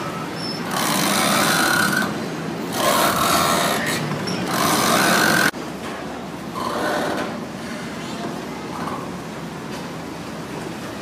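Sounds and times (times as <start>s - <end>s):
boat engine: 0.0s - 5.5s.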